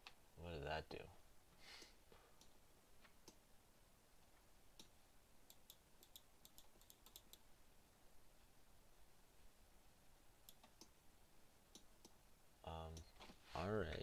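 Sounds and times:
computer keys and mouse clicks: 0:02.4 - 0:03.4, 0:04.8 - 0:07.4, 0:10.4 - 0:11.0, 0:11.7 - 0:12.2.

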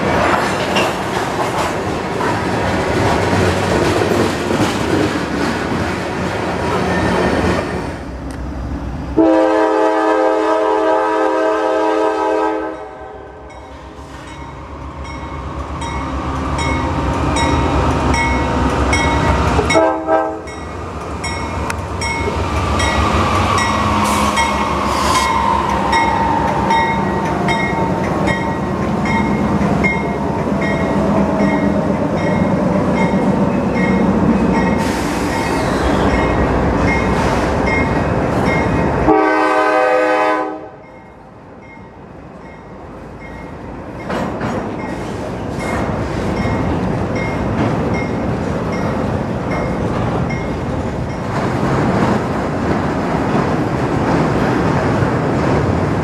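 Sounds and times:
train wheel clatter: 0:00.0 - 0:07.8, 0:43.2 - 0:56.0
locomotive rumbling: 0:00.0 - 0:56.0
locomotive air horn: 0:09.2 - 0:13.5, 0:19.7 - 0:20.5, 0:39.1 - 0:40.8.

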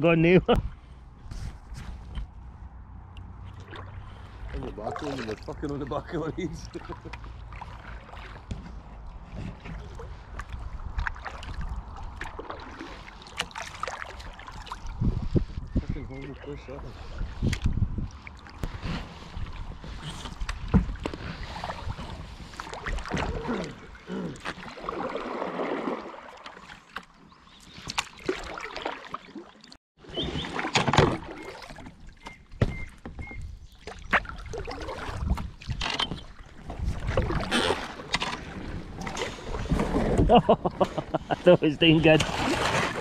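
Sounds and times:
flowing water: 0:02.9 - 0:43.0
paddles splashing in water: 0:03.2 - 0:15.5, 0:16.1 - 0:43.0
wind noise: 0:14.6 - 0:23.5, 0:32.2 - 0:37.7, 0:38.5 - 0:42.6.

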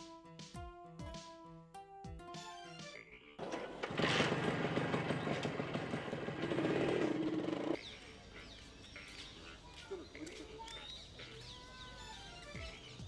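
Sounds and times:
motorcycle engine running: 0:03.4 - 0:07.8.

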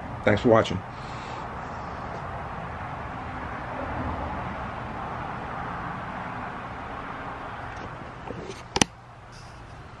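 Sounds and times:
steady rushing noise: 0:00.0 - 0:08.8
camera handling knocks: 0:08.4 - 0:08.9.

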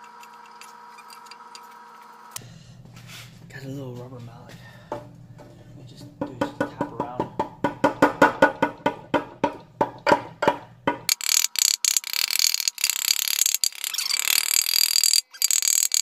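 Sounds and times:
rubber mallet knocking on metal cover: 0:04.9 - 0:11.1.

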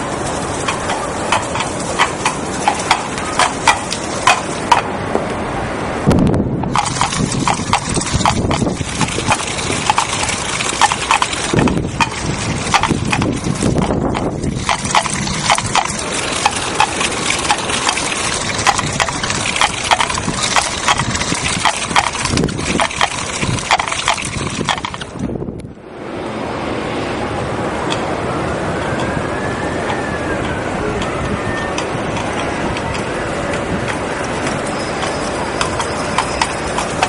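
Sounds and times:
street and tyre noise: 0:00.0 - 0:37.0
coconut shells clip-clopping: 0:00.6 - 0:04.9, 0:06.8 - 0:25.1, 0:31.8 - 0:37.0.

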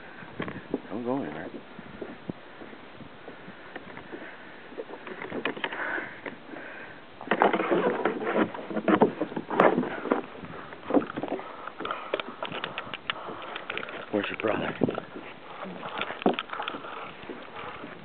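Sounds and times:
camera rustling against jacket: 0:07.2 - 0:18.0.

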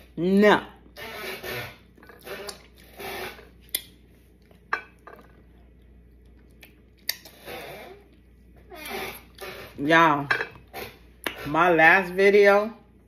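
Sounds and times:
dishes clinking: 0:10.3 - 0:10.6.

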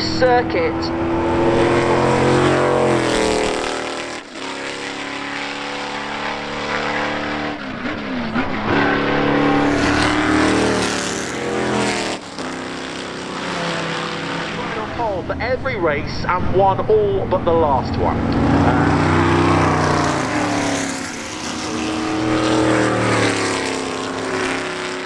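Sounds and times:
race car engines revving past: 0:00.0 - 0:25.0.

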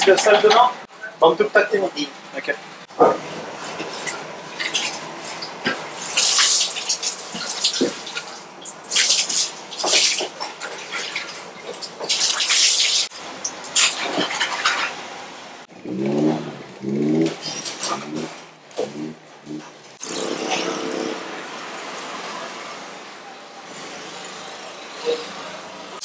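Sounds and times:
water splashing onto wooden floor: 0:04.6 - 0:15.0
dog growling: 0:15.8 - 0:21.2.

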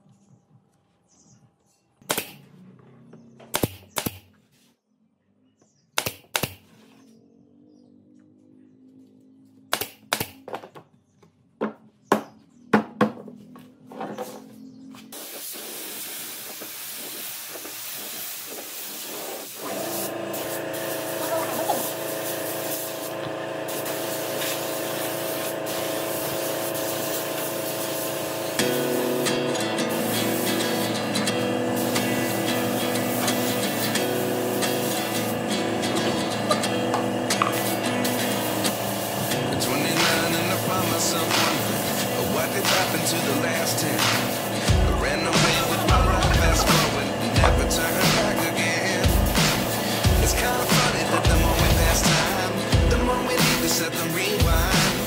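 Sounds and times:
steady hiss: 0:15.1 - 0:23.1, 0:37.6 - 0:52.7
background music: 0:39.3 - 0:55.0.

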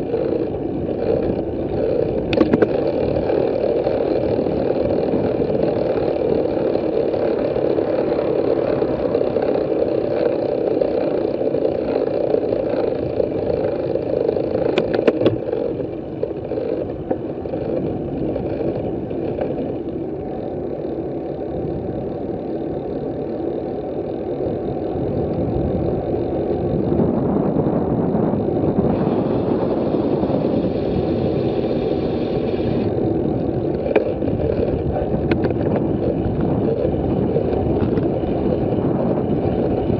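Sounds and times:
wind rumble on microphone: 0:00.0 - 0:39.9.

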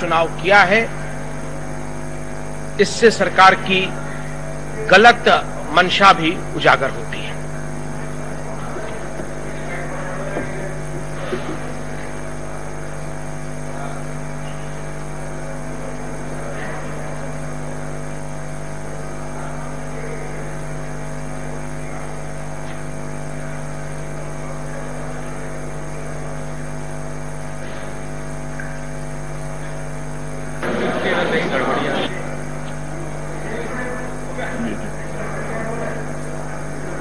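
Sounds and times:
electrical hum and buzz: 0:00.0 - 0:37.0
faint indistinct voices: 0:07.3 - 0:28.1, 0:29.6 - 0:37.0.

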